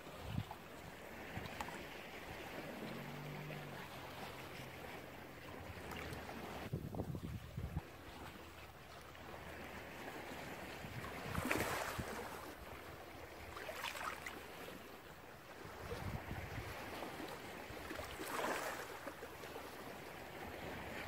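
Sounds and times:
ocean surf washing: 0.0s - 6.7s.

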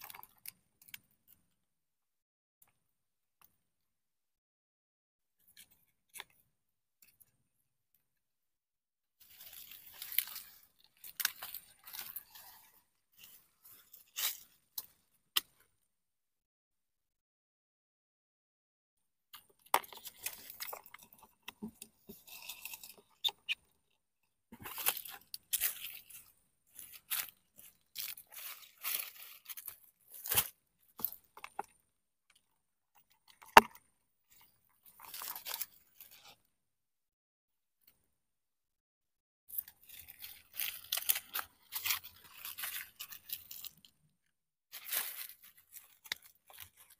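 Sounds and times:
dry leaves crunching and rustling: 26.8s - 30.5s.

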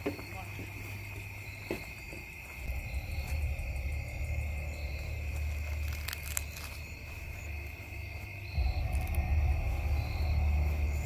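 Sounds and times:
night insects chorus: 0.0s - 11.0s
low rumble on microphone: 2.3s - 11.0s.

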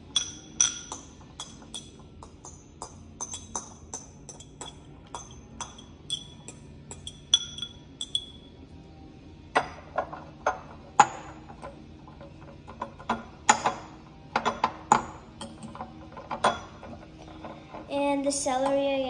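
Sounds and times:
fork clinking on crystal bowl: 3.2s - 8.5s.

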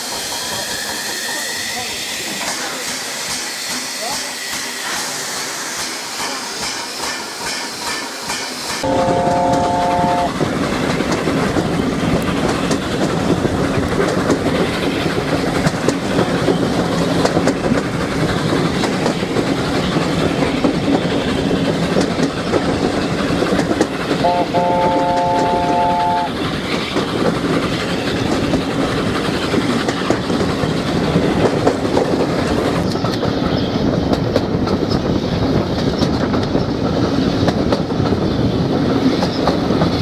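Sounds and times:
steam locomotive hissing steam: 0.0s - 34.0s
train wheels rumbling on rails: 0.0s - 40.0s
wind at open window: 26.4s - 40.0s.

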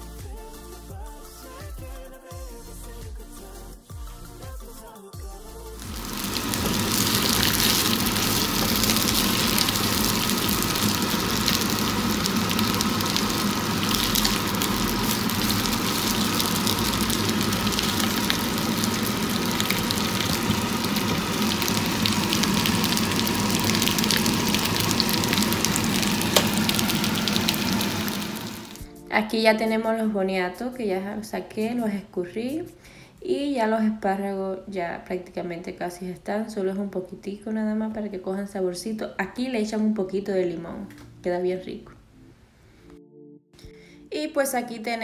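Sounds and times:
vegetables sizzling in frying pan: 5.8s - 28.8s.

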